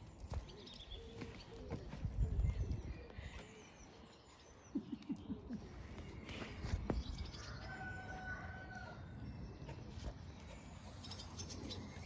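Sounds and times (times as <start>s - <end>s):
rooster crowing: 7.3s - 9.1s.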